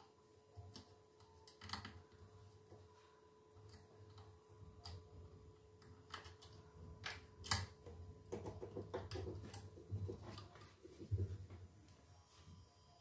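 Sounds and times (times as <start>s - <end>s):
fingers clicking and tapping wire: 0.0s - 2.3s, 3.5s - 11.2s
faint steady tone: 0.0s - 5.9s, 10.0s - 13.0s.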